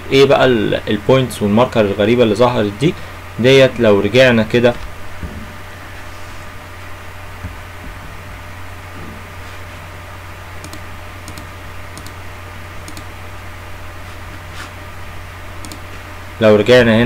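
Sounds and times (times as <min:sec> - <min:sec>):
background hum and hiss: 0:00.0 - 0:17.0
mouse and keyboard clicks: 0:10.6 - 0:12.2, 0:12.9 - 0:13.1, 0:15.6 - 0:15.8.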